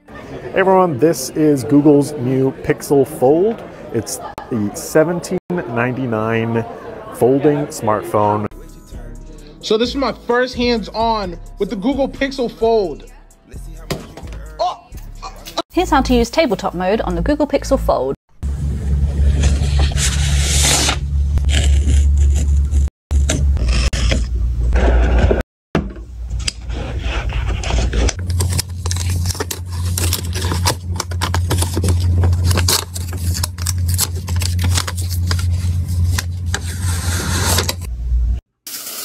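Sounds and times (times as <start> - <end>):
cardboard box scraping: 19.2 - 25.4, 26.6 - 37.9
paper crinkling: 27.1 - 37.9
steady low hum: 27.3 - 38.4.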